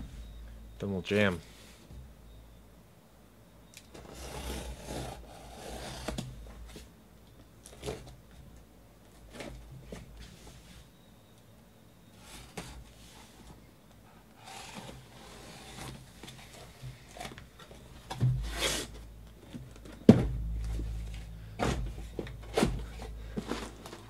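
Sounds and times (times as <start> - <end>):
cardboard and tape rustling: 14.6 - 24.0.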